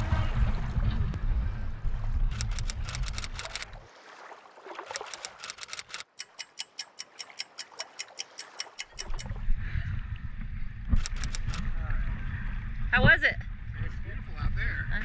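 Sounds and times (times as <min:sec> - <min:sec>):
wind rumble on microphone: 0:00.0 - 0:03.4, 0:09.1 - 0:15.0
rapid clock ticking: 0:05.1 - 0:09.3.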